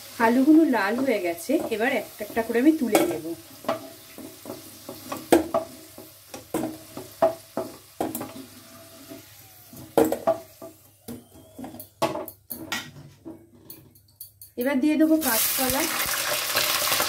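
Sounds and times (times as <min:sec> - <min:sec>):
faint oil sizzle: 0:00.0 - 0:11.0, 0:15.0 - 0:17.0
wooden spatula knocking on pan: 0:00.9 - 0:08.4.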